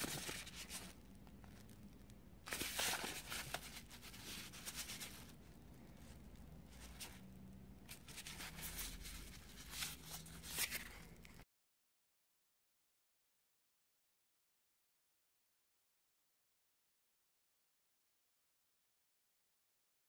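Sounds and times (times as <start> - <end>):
plastic bag and paper crinkling: 0.0 - 1.8, 2.5 - 5.4, 7.9 - 11.4.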